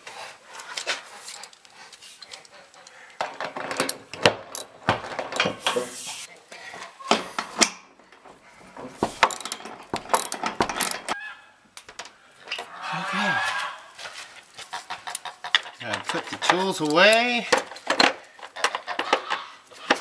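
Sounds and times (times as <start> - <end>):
ratchet wrench clicking: 9.2 - 11.1.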